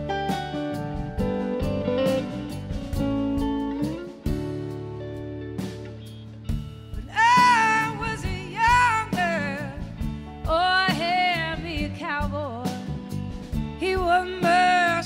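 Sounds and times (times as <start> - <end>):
electric guitar: 0.0 - 15.0
woman singing with vibrato: 7.0 - 12.9, 13.8 - 15.0.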